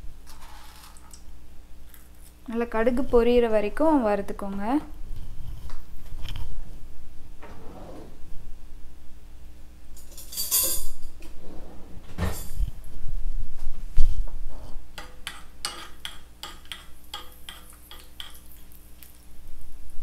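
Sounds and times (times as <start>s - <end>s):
metal spoon scraping a pan: 14.6s - 19.2s
spoon clicking on pan: 15.0s - 19.2s
seeds frying in oil: 15.6s - 20.0s.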